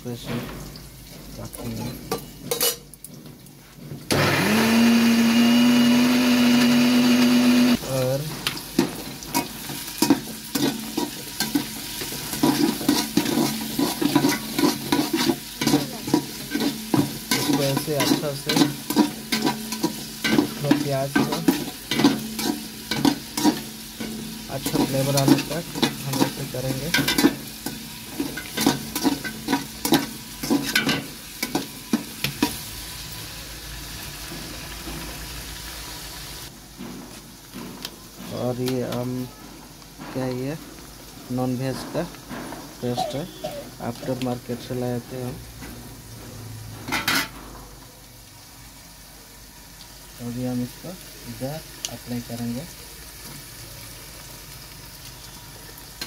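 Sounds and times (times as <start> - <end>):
onions sizzling in oil: 0.0 - 56.0
spatula scraping metal pot: 9.3 - 32.6.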